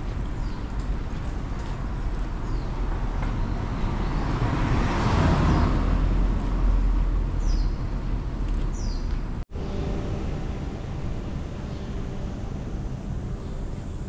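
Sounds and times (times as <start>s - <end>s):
street traffic noise: 0.0s - 14.0s
car passing: 1.3s - 14.0s
bird chirping: 7.4s - 14.0s.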